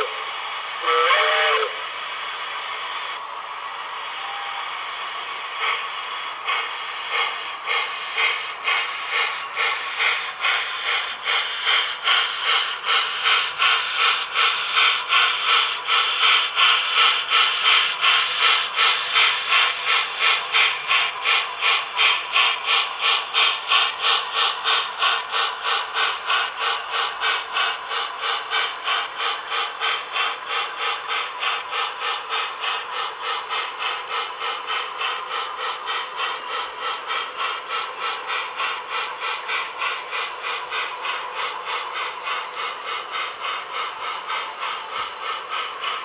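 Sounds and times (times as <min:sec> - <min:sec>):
model steam locomotive chuffing: 0:00.0 - 0:46.0.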